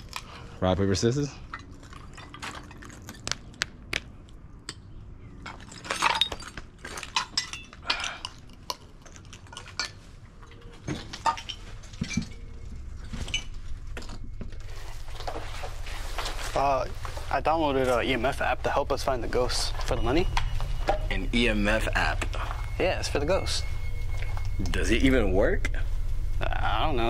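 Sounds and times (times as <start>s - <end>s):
footsteps crunching over rubble: 5.3s - 24.6s
low hum: 7.2s - 27.0s.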